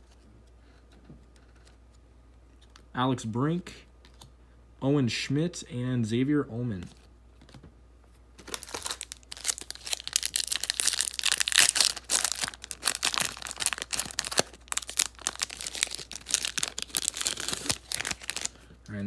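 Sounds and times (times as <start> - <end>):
foil wrapper tearing and crinkling: 8.4 - 18.6.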